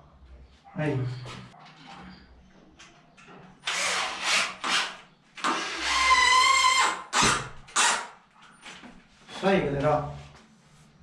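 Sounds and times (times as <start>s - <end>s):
cordless drill driving a screw: 3.6s - 8.1s.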